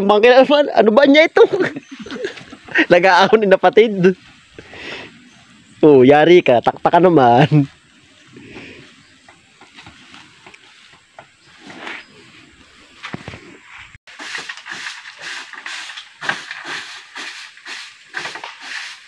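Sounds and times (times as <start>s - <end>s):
repeated scraping strokes: 7.4s - 19.0s
rustling: 7.4s - 19.0s.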